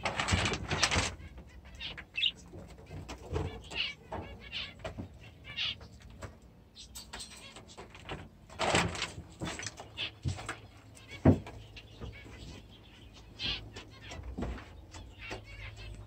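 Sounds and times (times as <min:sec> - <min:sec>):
rustling: 0:00.0 - 0:04.8, 0:07.3 - 0:11.2
small birds chirping: 0:00.0 - 0:16.0.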